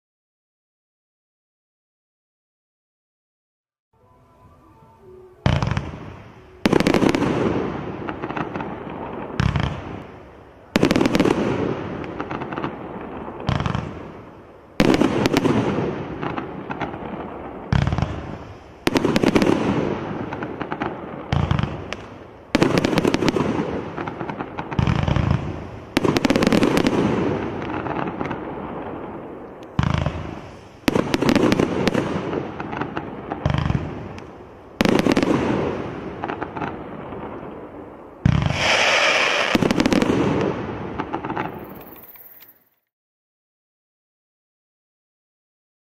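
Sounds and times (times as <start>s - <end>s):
firework shots with hiss: 5.4s - 42.0s
firework cake firing: 37.5s - 41.9s.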